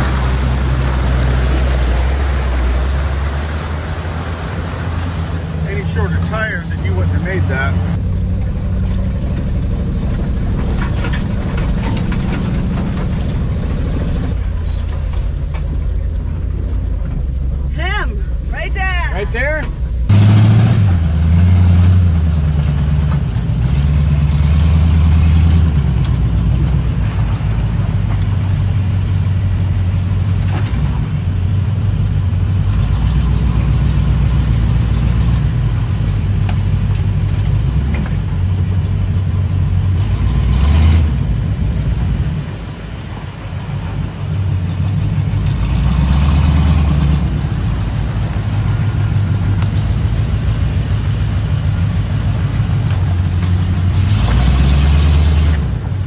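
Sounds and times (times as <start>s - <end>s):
truck engine revving: 0.0s - 56.0s.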